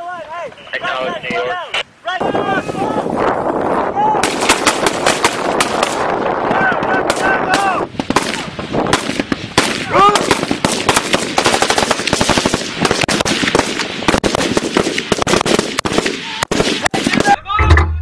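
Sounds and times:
rifles firing rapidly: 0:04.2 - 0:06.2, 0:07.0 - 0:17.4.

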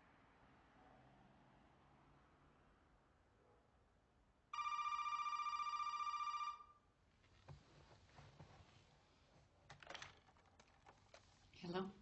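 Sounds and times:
telephone ringing: 0:04.6 - 0:06.8
faint rustles and clicks: 0:07.1 - 0:11.8.

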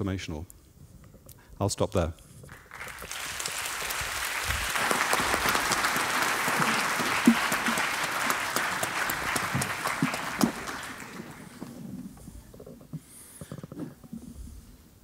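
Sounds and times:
audience applauding: 0:02.5 - 0:11.8.

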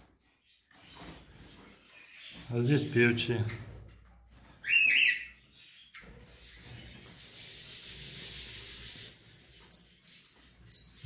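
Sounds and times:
rubbing hiss: 0:07.1 - 0:09.6.

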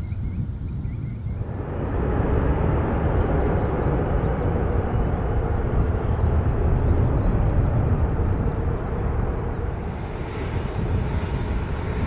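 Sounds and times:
jet engines roaring: 0:01.3 - 0:12.0.

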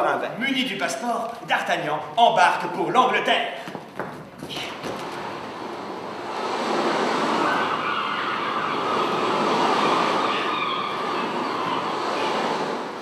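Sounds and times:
rushing sea noise: 0:04.6 - 0:13.0.

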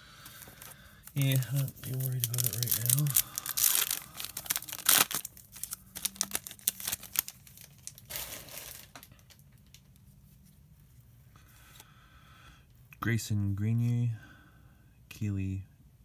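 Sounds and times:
cards rustling: 0:00.2 - 0:09.1
foil wrapper crinkling: 0:00.2 - 0:09.9.

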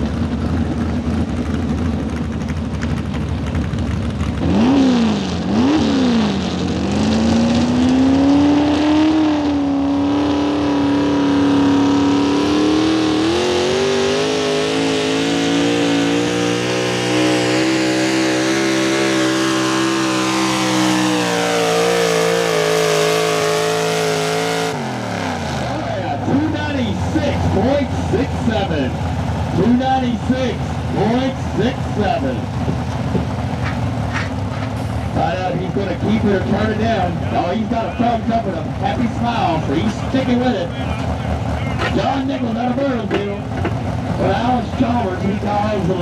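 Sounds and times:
tractor engine revving: 0:00.0 - 0:46.0.

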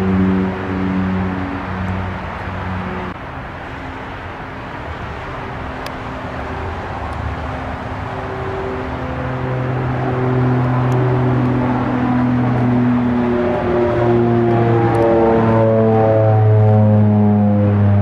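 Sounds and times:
deeper hum: 0:00.0 - 0:03.2, 0:05.5 - 0:18.0
airliner engine rush: 0:00.0 - 0:18.0.

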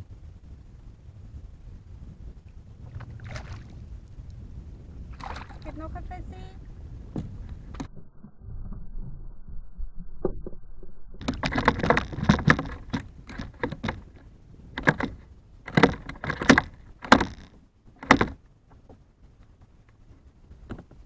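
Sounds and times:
low rumble: 0:00.0 - 0:21.0
fishing tackle clicking and rattling: 0:11.2 - 0:14.2.

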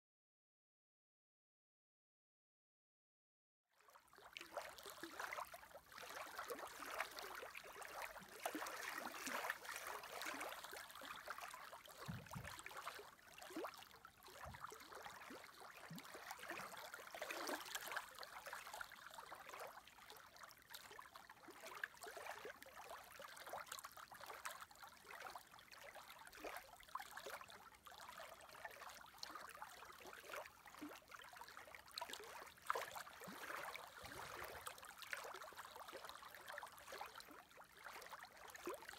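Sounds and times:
small waves lapping: 0:03.9 - 0:19.8, 0:30.3 - 0:38.8.

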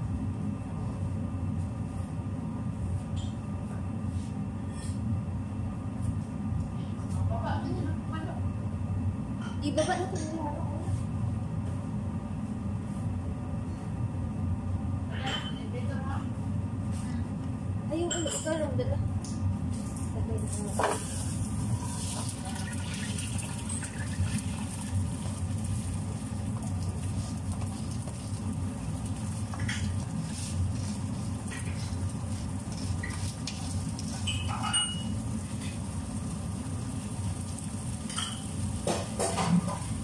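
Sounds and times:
low rumble of gas stove: 0:00.0 - 0:40.0
metal pots clinking: 0:34.2 - 0:35.2.

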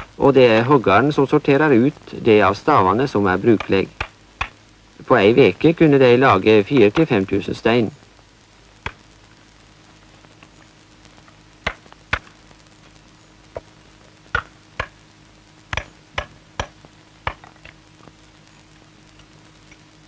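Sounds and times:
faint steady hum: 0:00.0 - 0:20.0
hammer tapping stone: 0:15.8 - 0:17.6.

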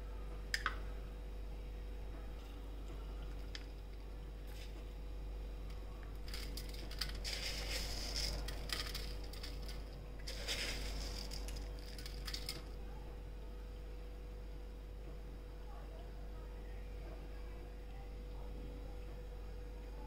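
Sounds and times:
faint steady hum: 0:00.0 - 0:20.0
fried toppings pattering onto plate: 0:06.2 - 0:12.7.

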